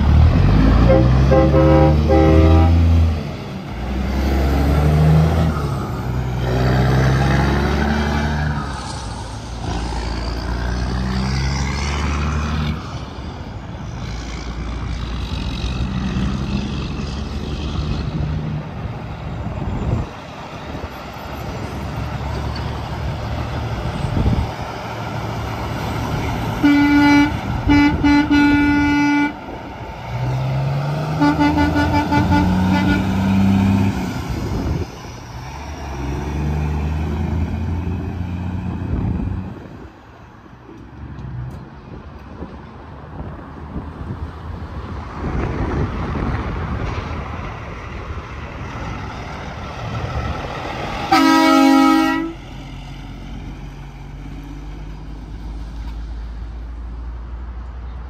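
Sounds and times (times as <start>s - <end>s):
trucks passing on highway: 0.0s - 58.0s
truck air horn blasts: 0.6s - 3.1s, 26.6s - 29.4s, 31.2s - 33.4s, 51.1s - 52.4s.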